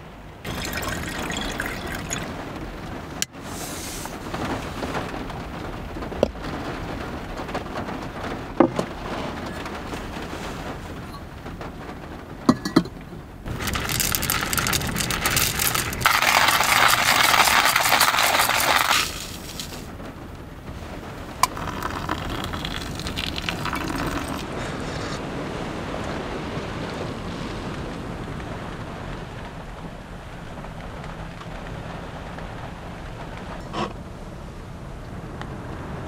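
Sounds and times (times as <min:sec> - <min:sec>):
steady rain: 0:00.0 - 0:36.0
water poured from a kettle: 0:00.5 - 0:02.3, 0:13.5 - 0:19.9, 0:21.4 - 0:24.5.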